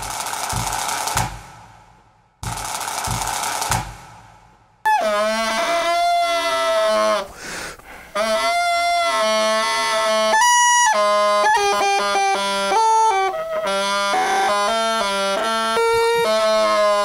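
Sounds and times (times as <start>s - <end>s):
bagpipe drone: 4.9s - 7.4s, 8.1s - 17.0s
toy bagpipes playing melody: 4.9s - 7.4s, 8.2s - 17.0s.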